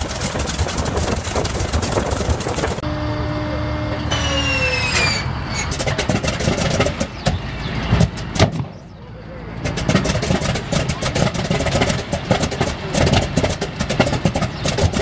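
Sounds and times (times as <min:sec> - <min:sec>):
radial engine running: 0:00.0 - 0:15.0
radial engine firing with pops: 0:05.7 - 0:15.0.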